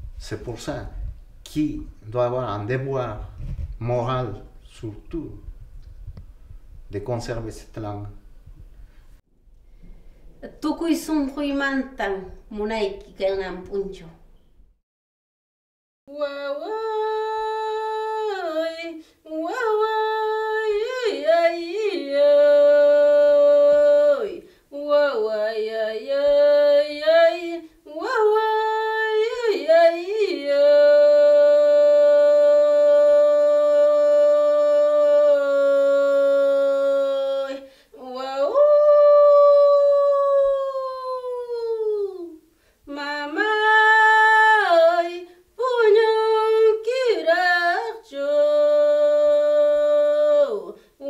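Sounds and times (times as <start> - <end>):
woman singing unaccompanied: 16.1 - 51.0.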